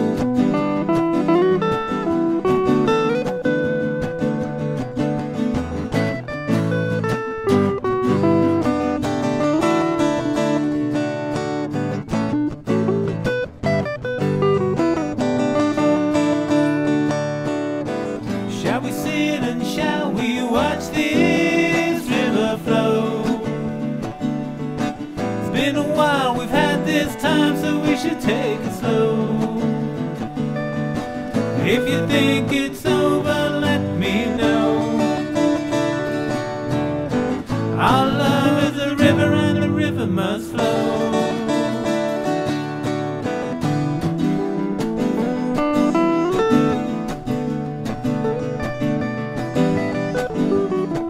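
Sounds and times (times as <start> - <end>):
acoustic guitar strumming chords: 0.0 - 51.0
sliding lead melody: 0.0 - 51.0
person singing: 18.2 - 24.3, 25.1 - 30.4, 31.5 - 36.1, 37.4 - 42.4.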